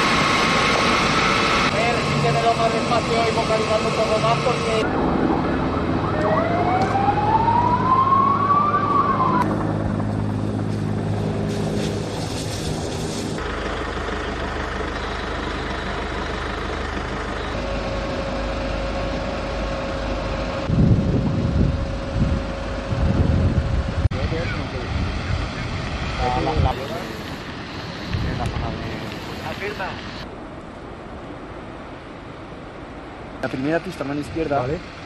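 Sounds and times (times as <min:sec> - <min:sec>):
low engine hum: 0:00.0 - 0:33.4
emergency siren wailing: 0:04.0 - 0:11.5
low gusty rumbles: 0:04.8 - 0:14.9, 0:19.6 - 0:33.4.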